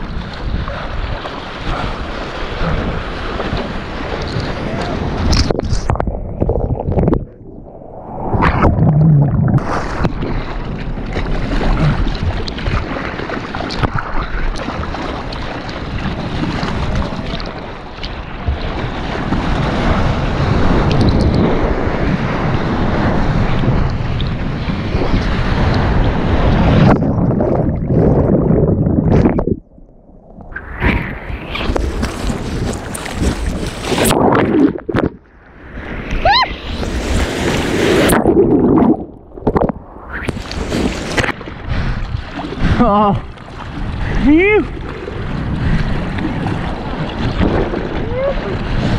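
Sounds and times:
water splashing over camera: 0:00.0 - 0:48.9
whitewater rushing and churning: 0:35.8 - 0:48.9.

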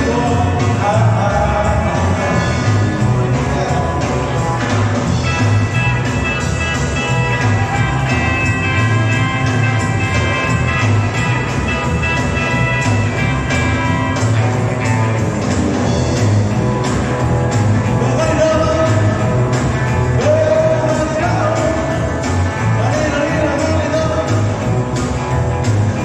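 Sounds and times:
person singing: 0:00.0 - 0:04.4, 0:17.9 - 0:19.3, 0:20.2 - 0:24.6
live rock band playing: 0:00.0 - 0:26.0.

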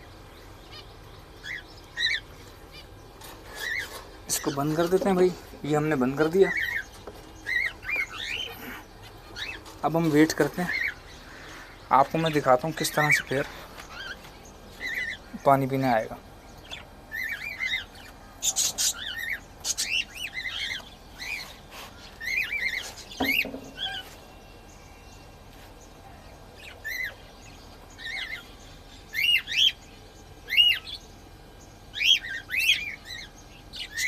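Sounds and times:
cockatiels chirping: 0:00.7 - 0:05.2, 0:06.3 - 0:09.7, 0:10.4 - 0:11.6, 0:16.6 - 0:24.2, 0:26.6 - 0:27.2, 0:28.0 - 0:29.8, 0:30.5 - 0:31.0, 0:31.9 - 0:34.0.

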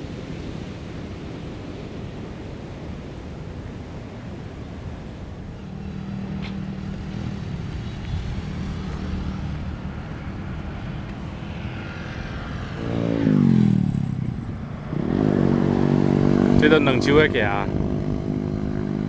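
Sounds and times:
road traffic rumble: 0:00.0 - 0:19.0
vehicle passing close by: 0:05.6 - 0:19.0.

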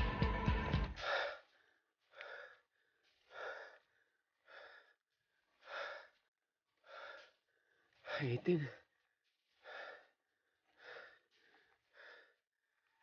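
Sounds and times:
background music: 0:00.0 - 0:01.0
cyclist breathing heavily: 0:00.9 - 0:13.0.

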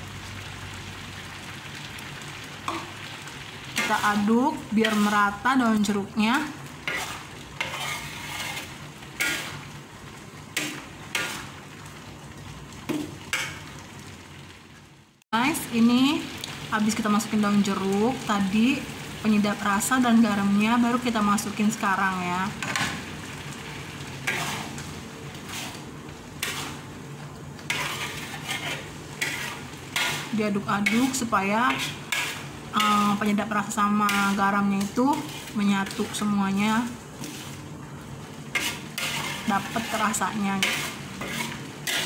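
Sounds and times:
paste sizzling: 0:01.4 - 0:12.0, 0:15.7 - 0:42.0
metal spoon scraping a metal pan: 0:03.8 - 0:05.4, 0:06.8 - 0:09.6, 0:10.6 - 0:11.5, 0:24.2 - 0:24.8, 0:25.4 - 0:25.8, 0:26.4 - 0:26.8, 0:27.7 - 0:36.2, 0:37.2 - 0:37.6, 0:38.5 - 0:42.0.

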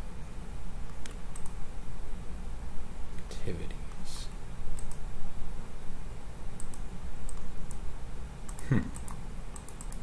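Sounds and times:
steady low hum: 0:00.0 - 0:10.0
computer mouse clicks: 0:00.9 - 0:01.6, 0:03.9 - 0:05.0, 0:06.6 - 0:07.8, 0:08.4 - 0:10.0.

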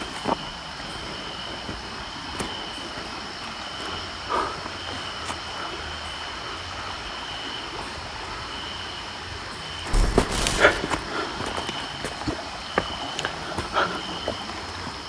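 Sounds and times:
microphone handling noise: 0:09.9 - 0:10.9
rustling through brush: 0:09.9 - 0:11.1
footsteps: 0:09.9 - 0:11.6.

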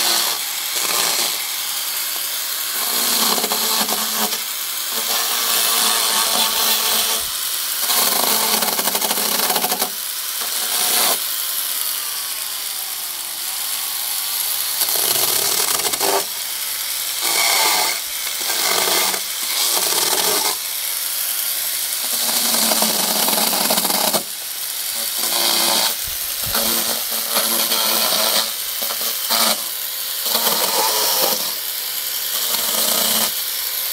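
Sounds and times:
chainsaw cutting bamboo: 0:00.0 - 0:33.9.

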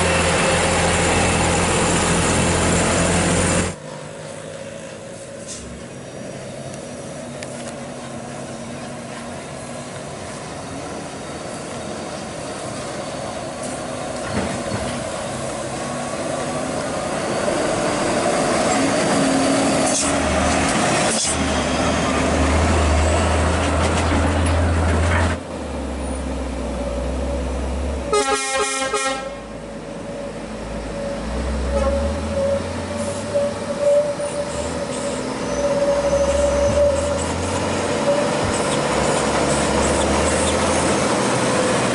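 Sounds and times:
truck diesel engines rumbling: 0:00.0 - 0:41.9
truck engine whine: 0:00.0 - 0:41.9
truck horn toot: 0:28.1 - 0:29.5, 0:31.6 - 0:34.5.

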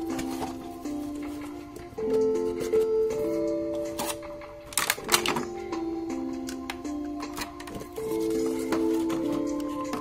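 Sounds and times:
music of held chords: 0:00.0 - 0:10.0
cardboard packaging clicks: 0:04.0 - 0:05.4.

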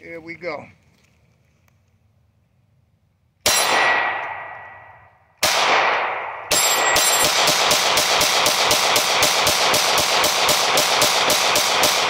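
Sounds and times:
pistol shots with echo: 0:03.4 - 0:12.0.

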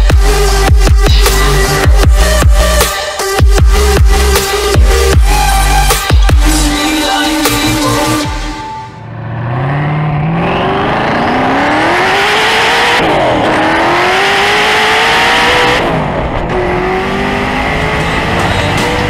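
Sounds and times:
car engine accelerating: 0:09.0 - 0:19.0.

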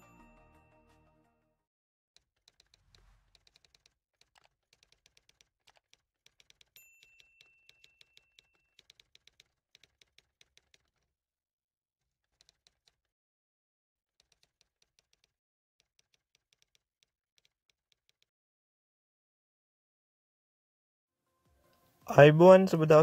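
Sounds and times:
faint keyboard typing clicks: 0:02.2 - 0:11.1, 0:12.2 - 0:13.1, 0:14.2 - 0:18.3.

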